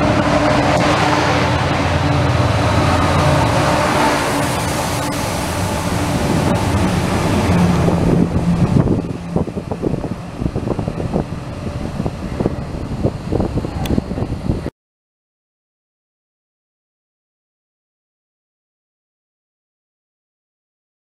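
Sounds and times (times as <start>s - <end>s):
diesel locomotive engine: 0.0s - 14.7s
rush of wheel and air noise: 0.0s - 14.7s.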